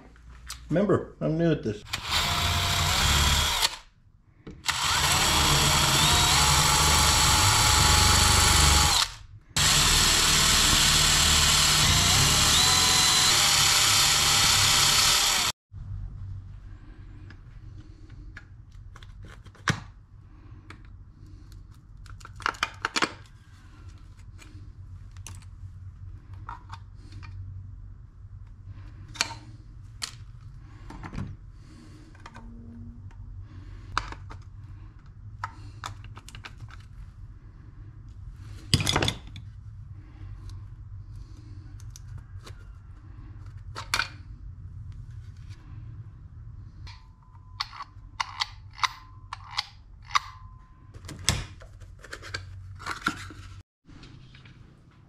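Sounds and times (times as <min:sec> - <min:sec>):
steady low hum: 0:00.0 - 0:19.0
tools clicking against metal: 0:47.6 - 0:50.5.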